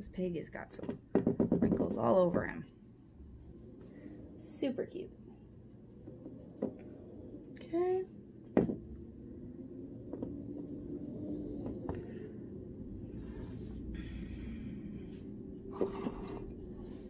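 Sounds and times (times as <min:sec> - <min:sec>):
steady low hum: 0:00.0 - 0:17.0
paintbrush scratching: 0:02.0 - 0:03.9, 0:05.2 - 0:06.8, 0:10.4 - 0:11.7.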